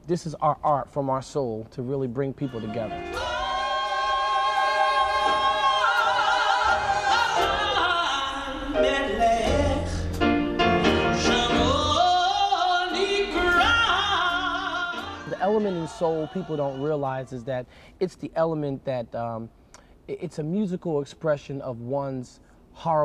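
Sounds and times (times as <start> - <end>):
man singing gospel: 2.2 - 10.0, 11.1 - 18.5
piano: 2.7 - 16.8.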